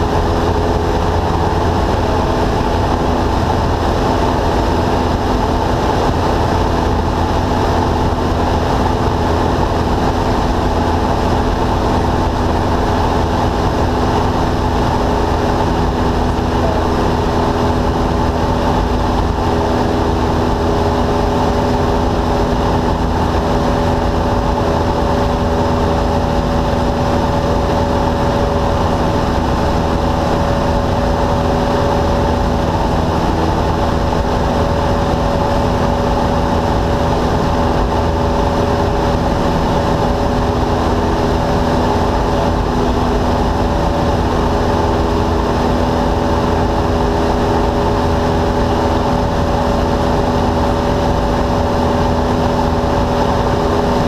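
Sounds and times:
airflow rushing: 0.0s - 54.0s
propeller plane engine: 0.0s - 54.0s.

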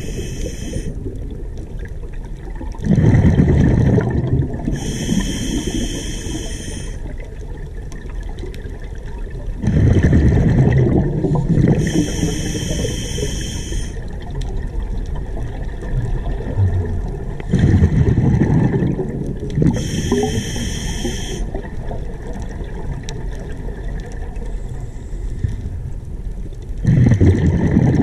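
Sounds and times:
regulator inhalation hiss: 0.0s - 0.9s, 4.7s - 7.1s, 11.7s - 14.0s, 19.8s - 21.5s
gurgling exhaled bubbles: 0.0s - 24.5s, 26.8s - 28.0s.

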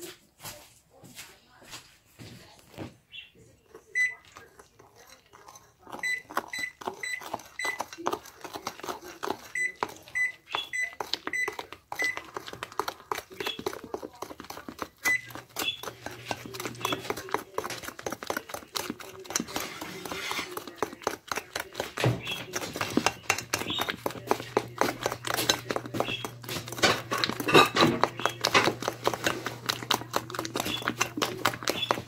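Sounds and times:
spoon clinking in ceramic bowl: 25.0s - 29.2s.

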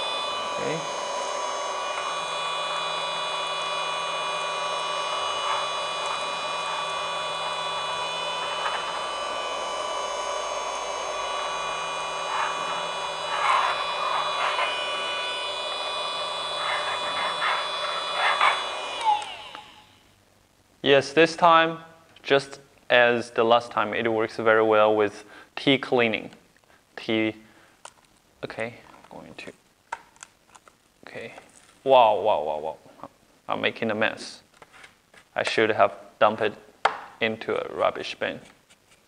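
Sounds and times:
handheld vacuum motor whining: 0.0s - 20.1s.

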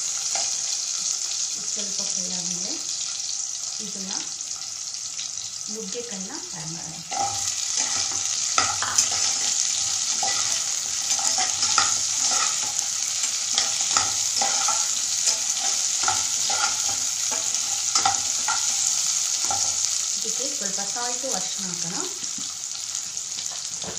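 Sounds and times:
food sizzling in oil: 0.0s - 23.9s
metal spatula scraping pot: 7.1s - 20.2s.

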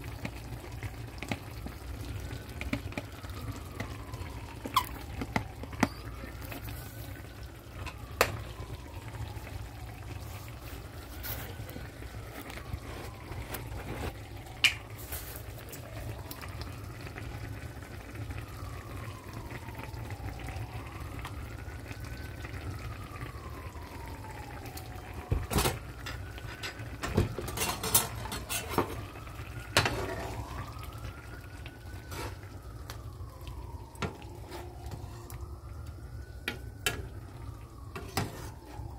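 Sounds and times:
stew simmering: 0.0s - 38.9s
liquid pouring into a skillet: 22.5s - 38.9s.

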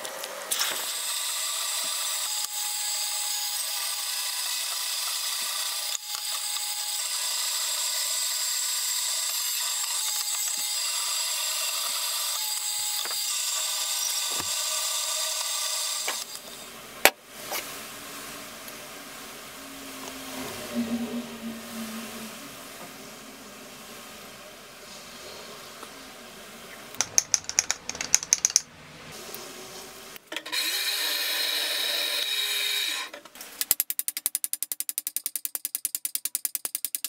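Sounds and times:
band saw cutting metal: 0.7s - 16.7s, 30.4s - 33.1s.

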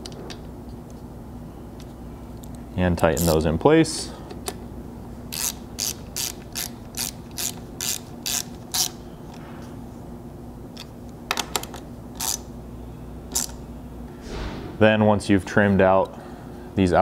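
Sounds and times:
socket ratchet clicking: 5.3s - 9.0s, 10.8s - 12.5s, 13.3s - 13.6s.

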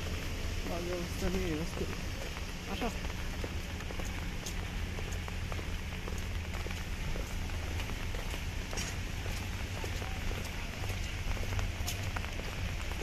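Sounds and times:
rain falling on pavement: 0.0s - 13.0s
raindrop ticks: 0.0s - 13.0s.

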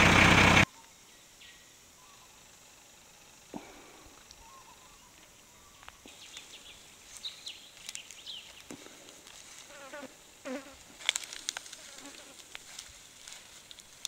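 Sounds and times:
high insect hum: 0.0s - 14.0s
bird chirps: 4.3s - 8.7s
light clicks and rustles: 11.0s - 14.0s.

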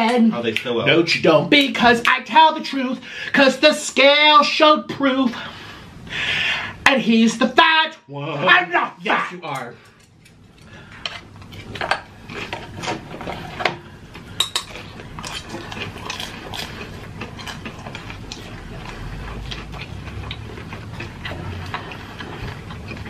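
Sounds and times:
chewing: 9.9s - 23.0s.

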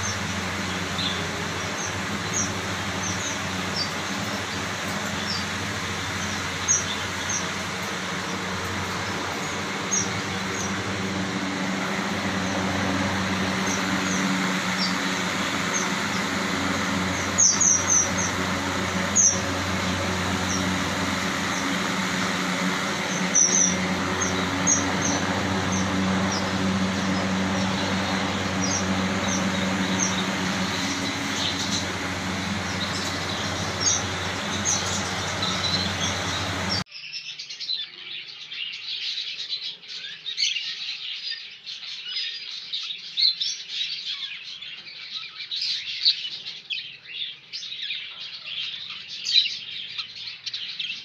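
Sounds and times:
lovebirds chirping: 0.0s - 36.9s
steady hum and hiss: 0.0s - 36.9s.

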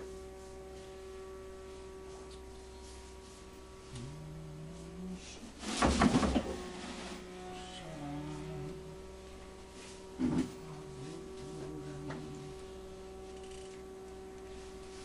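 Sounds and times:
electrical hum: 0.0s - 15.0s
loud rough noise: 2.9s - 13.8s
low voice: 3.9s - 5.6s, 7.3s - 9.0s, 10.2s - 12.7s.

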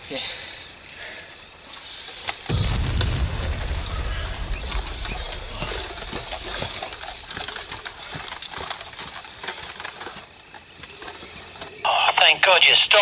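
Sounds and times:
low rumble: 2.5s - 8.5s
running footsteps: 4.7s - 11.8s.

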